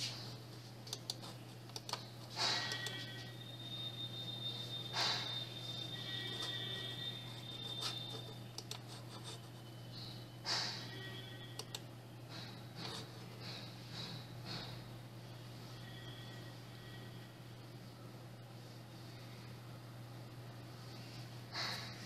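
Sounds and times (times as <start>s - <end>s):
high-pitched computer whine: 0.3s - 18.4s
computer mouse clicks: 0.8s - 3.0s, 8.5s - 8.9s, 11.6s - 11.8s.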